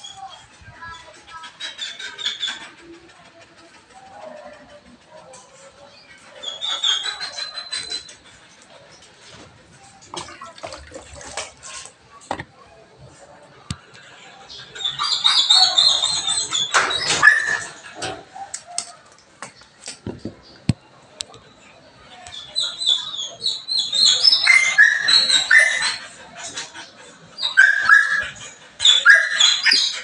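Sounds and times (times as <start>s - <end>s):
dogs whining and whimpering: 3.6s - 8.8s, 14.8s - 18.5s, 22.8s - 30.0s.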